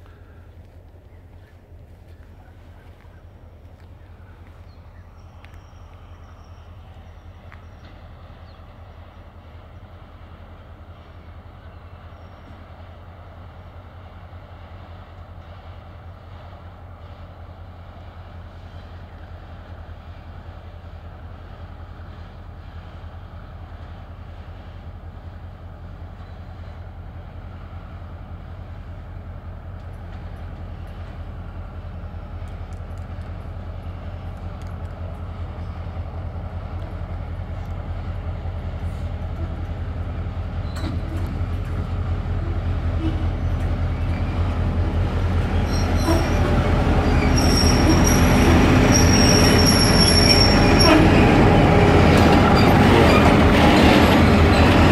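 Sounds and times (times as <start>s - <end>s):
diesel locomotive engine drone: 0.0s - 54.9s
high-pitched wheel squeal: 45.5s - 51.3s.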